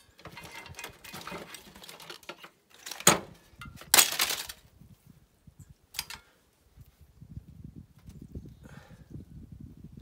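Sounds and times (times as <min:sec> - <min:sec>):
circuit board and wires rattling: 0:00.2 - 0:04.6.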